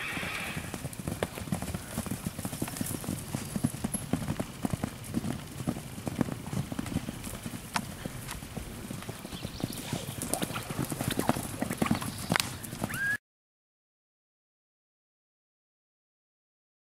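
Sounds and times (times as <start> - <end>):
horse hoofbeats on sand: 0.0 - 13.0.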